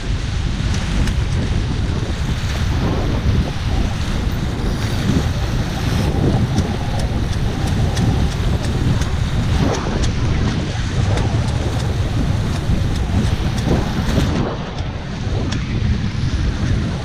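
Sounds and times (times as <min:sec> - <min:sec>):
water rushing past hulls: 0:00.0 - 0:17.0
wind buffeting microphone: 0:00.0 - 0:17.0
light ticks: 0:05.0 - 0:14.9.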